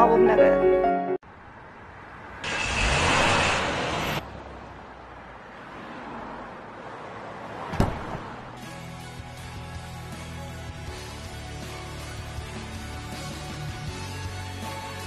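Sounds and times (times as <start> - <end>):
roadside noise: 0.0 - 15.0
vehicle rushing past: 1.9 - 8.6.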